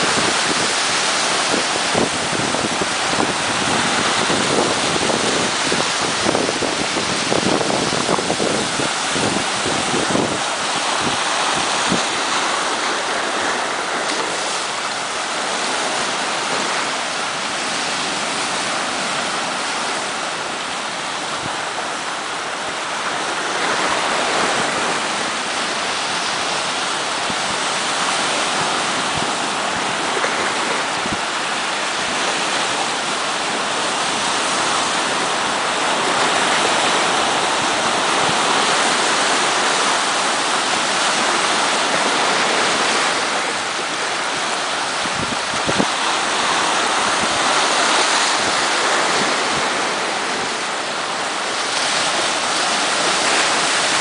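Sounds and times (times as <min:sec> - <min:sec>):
waves breaking on rocky shore: 0:00.0 - 0:54.0.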